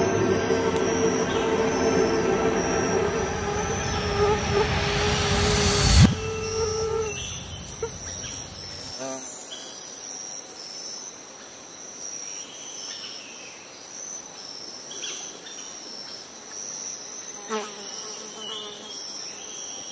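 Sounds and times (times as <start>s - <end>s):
insects trilling: 0.0s - 5.2s
low rumble: 0.0s - 9.0s.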